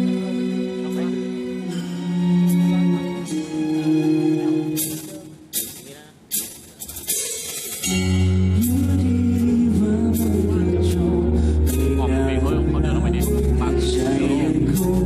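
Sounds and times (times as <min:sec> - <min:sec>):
rock band with violins playing: 0:00.0 - 0:15.0.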